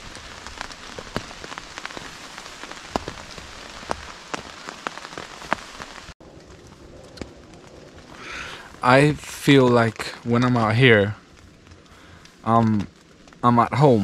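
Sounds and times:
hard rain on tent: 0.0s - 14.0s.

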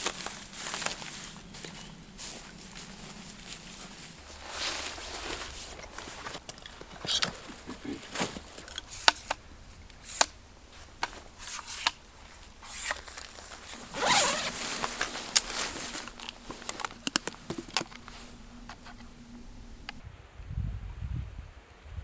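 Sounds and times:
backpack zipper opening: 12.7s - 16.3s.

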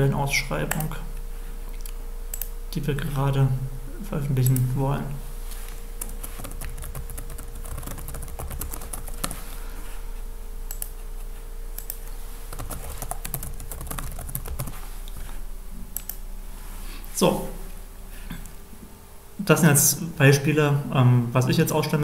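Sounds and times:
faint steady hum: 0.0s - 22.0s
typing on computer keyboard: 6.3s - 9.4s, 12.6s - 14.7s.

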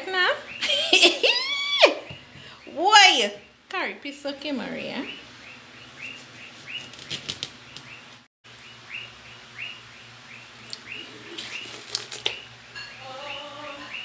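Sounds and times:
high chirping: 8.6s - 14.0s
biting into watermelon: 10.7s - 12.4s.

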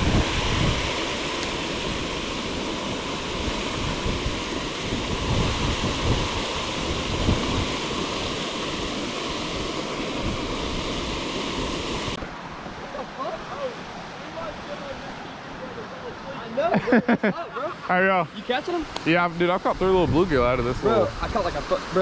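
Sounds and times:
wind buffeting microphone: 0.0s - 12.2s, 19.6s - 21.8s
water rushing over waterfalls: 0.0s - 22.0s.

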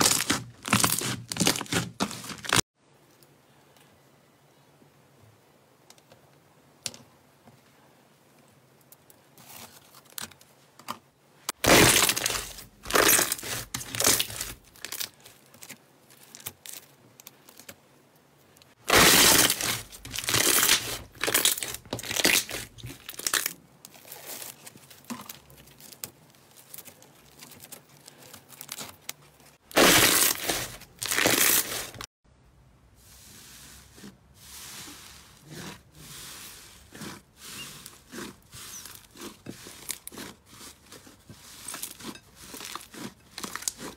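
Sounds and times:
slime crackling and squelching: 0.0s - 2.7s, 11.5s - 17.7s, 18.7s - 32.1s, 33.4s - 43.9s.

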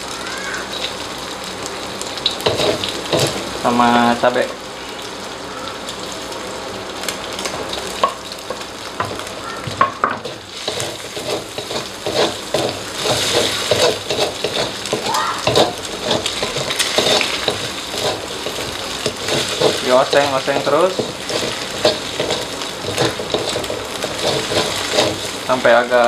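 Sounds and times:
garlic sizzling in hot oil: 0.0s - 26.0s
metal spatula scraping a wok: 2.4s - 3.4s, 10.2s - 25.5s.

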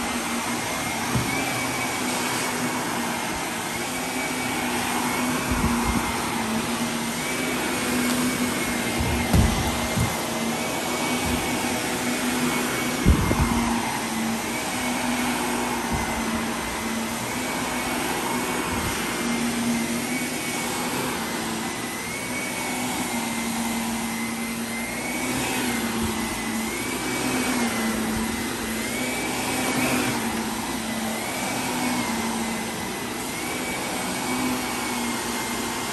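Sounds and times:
vacuum cleaner on carpet: 0.0s - 35.9s
knock: 9.2s - 10.1s.

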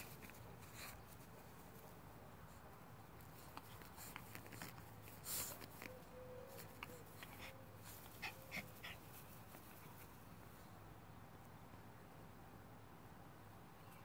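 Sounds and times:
rustling on grass: 0.0s - 10.8s.

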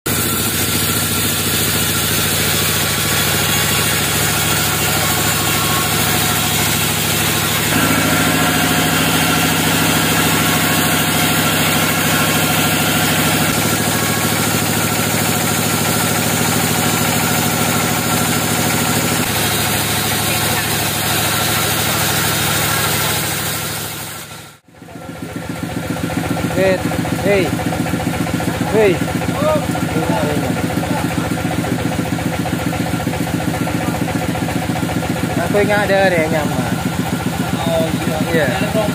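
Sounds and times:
band saw cutting log: 0.1s - 24.5s.

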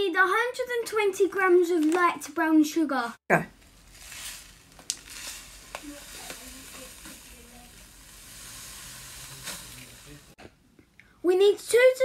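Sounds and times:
sugar pouring into bowl: 3.6s - 10.4s.

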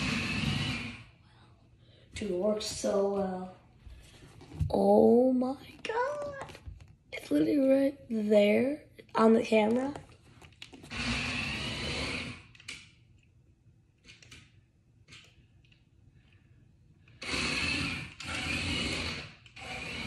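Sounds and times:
toy car motor whirring: 0.0s - 1.2s, 10.8s - 12.8s, 17.1s - 20.0s.

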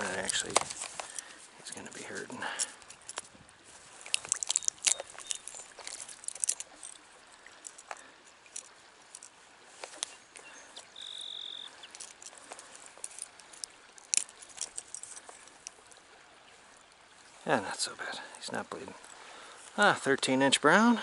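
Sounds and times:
light metallic rattles: 0.0s - 10.2s, 11.8s - 16.0s
small clicks: 4.0s - 7.0s.

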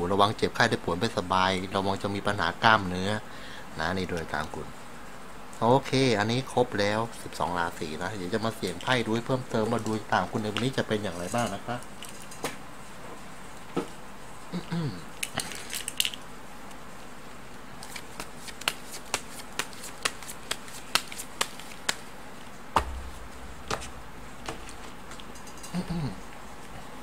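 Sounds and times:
cards shuffling and snapping: 17.8s - 22.1s.

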